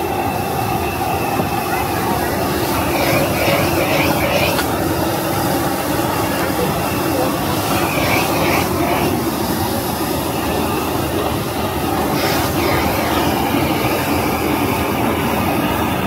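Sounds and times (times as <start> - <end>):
wok burner roaring: 0.0 - 16.0
extractor fan running: 1.7 - 16.0
background voices: 2.1 - 5.3, 6.1 - 9.4, 12.0 - 14.5.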